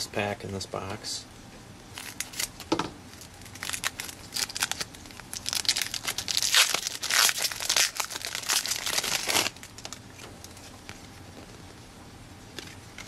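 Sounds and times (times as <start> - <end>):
plastic wrapper crinkling: 1.9 - 10.7.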